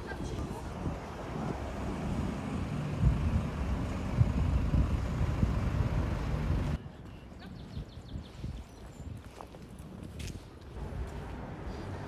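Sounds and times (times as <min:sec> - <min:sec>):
traffic rumble: 0:00.0 - 0:07.7, 0:09.6 - 0:12.0.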